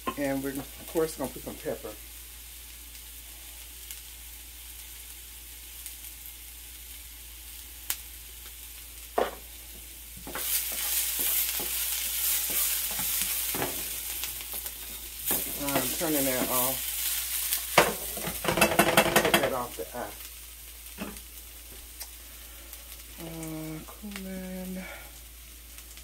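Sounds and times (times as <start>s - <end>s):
meat and onions sizzling in a pan: 0.0s - 26.0s
knock on frying pan: 9.2s - 9.4s, 17.8s - 19.6s.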